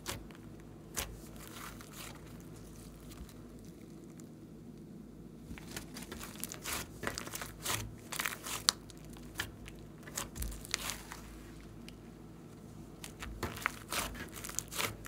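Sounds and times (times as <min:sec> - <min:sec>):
slime crackling and popping: 0:05.6 - 0:11.2, 0:13.0 - 0:15.0.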